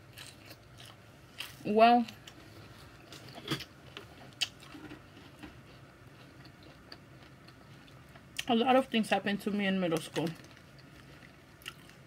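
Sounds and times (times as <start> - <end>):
person chewing salad: 0.0 - 8.5, 10.0 - 12.0.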